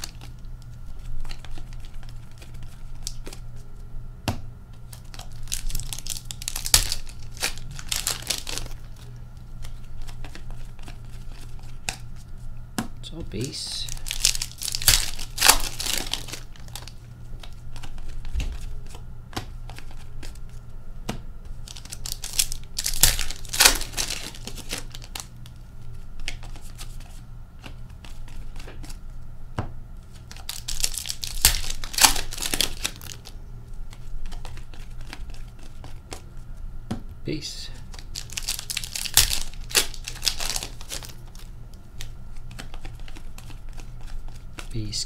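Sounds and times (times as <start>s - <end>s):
card pack wrappers tearing: 0.0s - 3.4s, 4.9s - 12.0s, 13.4s - 19.0s, 21.6s - 25.6s, 30.1s - 33.3s, 33.9s - 36.2s, 37.8s - 45.0s
cards clicking while handled: 9.6s - 12.0s, 14.0s - 20.5s, 26.2s - 29.0s, 33.9s - 36.2s, 37.8s - 44.8s.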